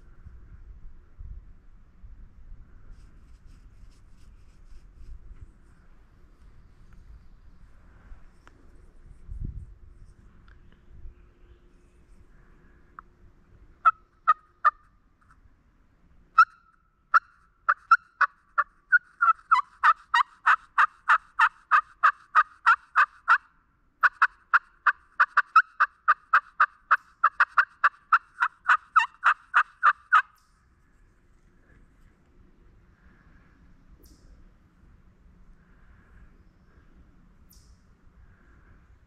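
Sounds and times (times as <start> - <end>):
bird calling: 16.4 - 23.4, 24.0 - 30.6.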